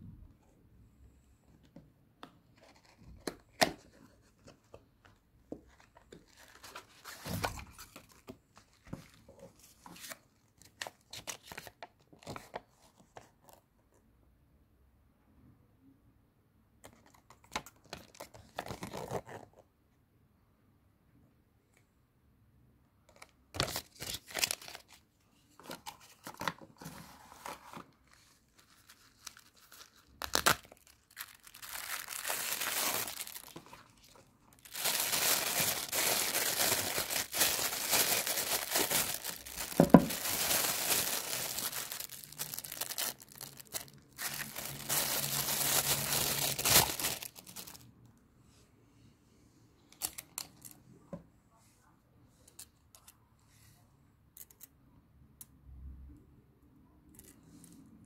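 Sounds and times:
plastic bag crinkling: 28.6s - 47.8s.

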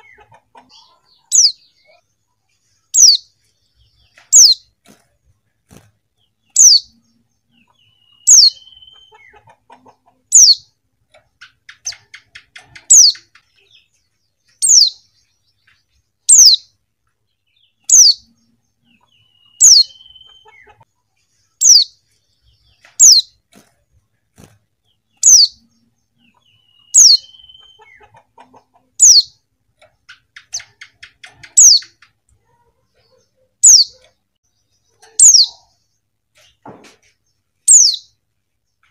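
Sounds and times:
bird high downward calls: 0.0s - 2.0s, 2.8s - 4.7s, 6.4s - 10.8s, 11.4s - 16.8s, 17.5s - 23.4s, 25.0s - 36.0s, 37.6s - 38.2s
faint rapid bird twittering: 0.0s - 10.7s, 11.4s - 29.4s.

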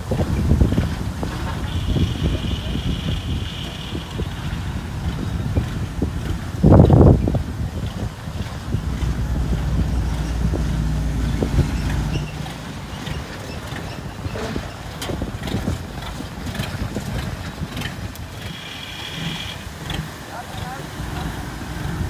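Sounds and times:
crawler carrier engine running: 0.0s - 22.0s
wind buffeting microphone: 0.0s - 22.0s.

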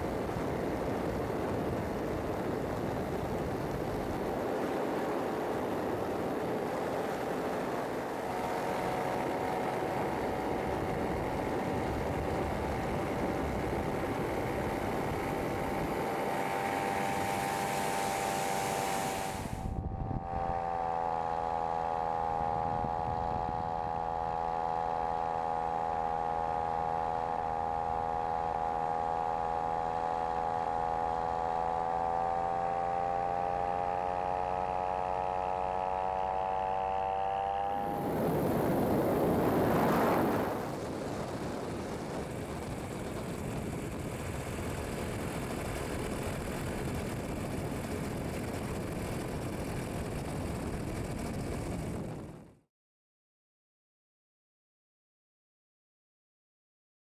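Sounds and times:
wind noise: 0.0s - 20.6s, 22.4s - 24.3s, 37.8s - 52.6s
aircraft engine and propeller: 0.0s - 52.7s.

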